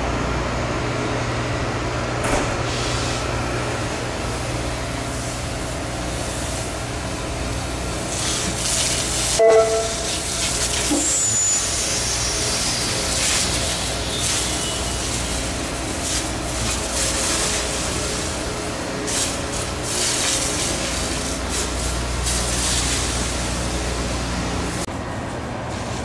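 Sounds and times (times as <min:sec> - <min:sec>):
grinding stones hissing: 0:08.0 - 0:24.1.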